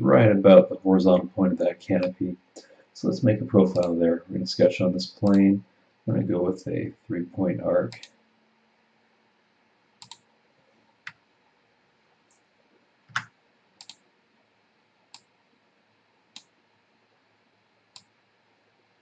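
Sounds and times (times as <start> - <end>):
computer mouse clicking: 3.7 - 4.0, 7.9 - 8.2, 10.0 - 10.3, 13.1 - 14.0, 17.9 - 18.1.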